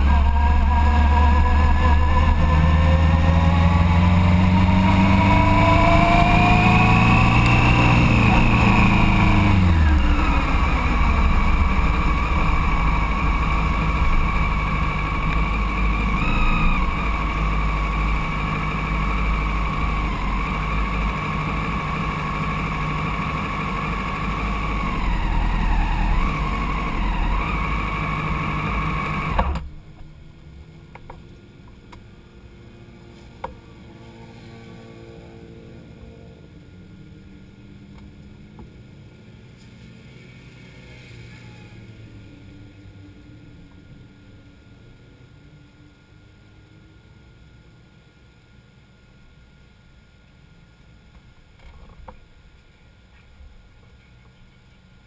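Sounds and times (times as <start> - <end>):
motorcycle engine: 0.0 - 31.1.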